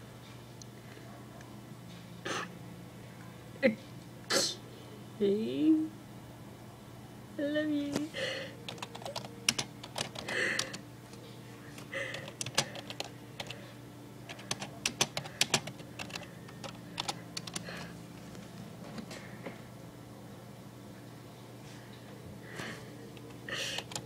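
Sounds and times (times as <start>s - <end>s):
faint steady hum: 0.0s - 24.0s
keyboard keystroke clicks: 14.3s - 17.6s.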